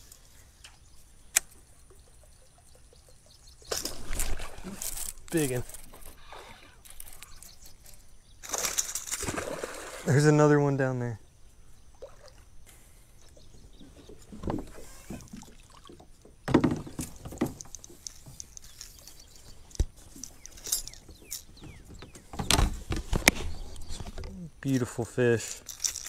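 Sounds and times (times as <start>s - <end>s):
knocks and clicks against hull: 13.8s - 18.8s, 19.7s - 24.4s.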